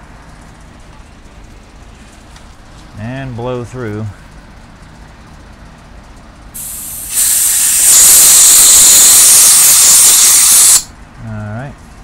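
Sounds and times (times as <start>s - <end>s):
compressed air hissing: 6.6s - 10.9s.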